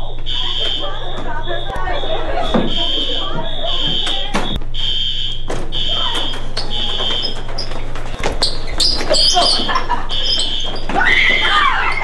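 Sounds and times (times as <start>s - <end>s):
fire alarm pulsing tone: 0.0s - 12.0s
people shouting: 10.8s - 12.0s.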